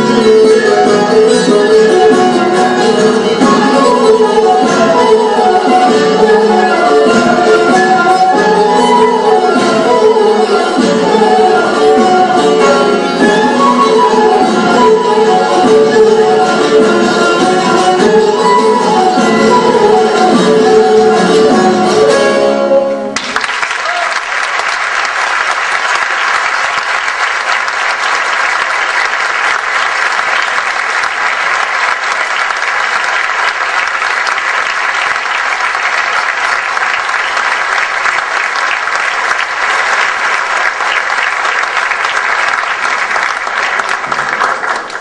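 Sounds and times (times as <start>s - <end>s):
plucked string folk music: 0.0s - 23.2s
audience applause: 23.2s - 45.0s.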